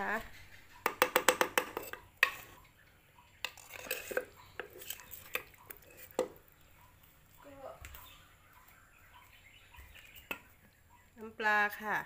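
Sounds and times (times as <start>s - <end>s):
spoon and pestle clinking in mortar: 0.8s - 2.6s, 3.4s - 6.4s.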